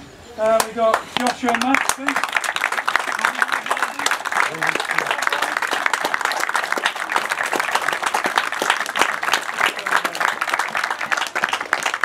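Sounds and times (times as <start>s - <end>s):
crowd applauding: 0.6s - 12.0s.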